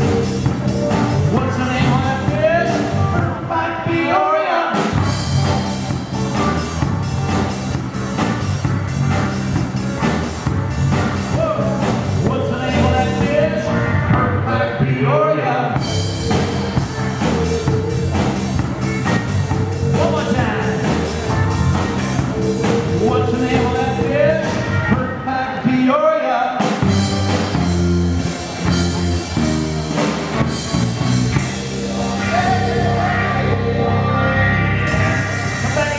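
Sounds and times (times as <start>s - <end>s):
drum kit: 0.0s - 3.5s, 4.8s - 14.3s, 15.7s - 25.2s, 26.6s - 35.9s
electric guitar: 0.0s - 4.0s, 4.7s - 15.0s, 15.6s - 25.7s, 26.6s - 35.9s
electric bass: 0.0s - 4.2s, 4.8s - 25.8s, 26.6s - 35.9s
person singing: 0.9s - 4.9s, 11.3s - 26.0s, 31.8s - 35.9s.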